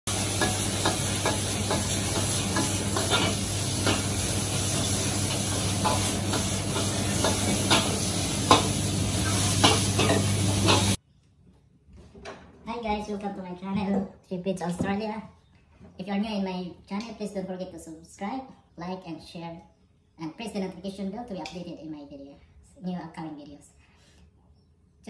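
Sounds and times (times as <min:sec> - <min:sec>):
stir-fry sizzling in a wok: 0:00.1 - 0:11.0
utensil clanking against wok: 0:00.1 - 0:11.0.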